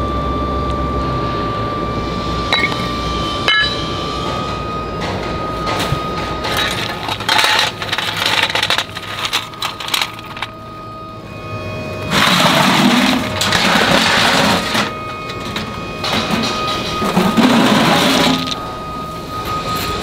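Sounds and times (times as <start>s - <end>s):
high factory hum: 0.0s - 20.0s
metal lumps clinking and clattering: 2.6s - 2.9s, 3.5s - 3.9s, 5.0s - 10.5s, 12.1s - 18.6s
sharp ringing metallic clinks: 3.5s - 3.9s.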